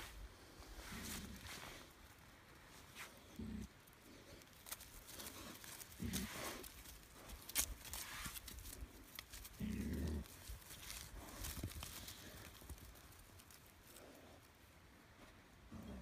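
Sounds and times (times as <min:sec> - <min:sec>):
trotters ticking and rustling grass: 0:00.0 - 0:16.0
pigs grunting: 0:03.3 - 0:03.8, 0:05.8 - 0:06.8, 0:09.4 - 0:11.5, 0:15.7 - 0:16.0.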